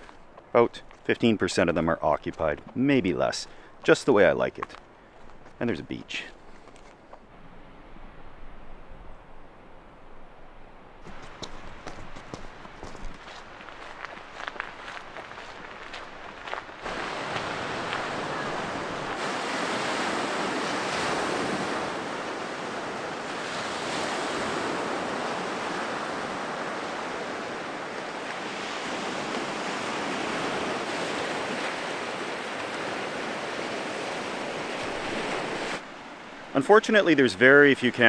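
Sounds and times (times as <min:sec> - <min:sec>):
waves washing on cobble beach: 0:11.0 - 0:38.0.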